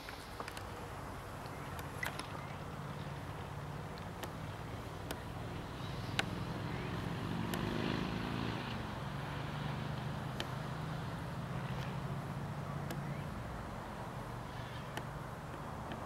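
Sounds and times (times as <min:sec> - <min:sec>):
sharp ticks: 0:03.9 - 0:05.4, 0:06.0 - 0:06.5, 0:07.4 - 0:07.8, 0:10.3 - 0:10.7.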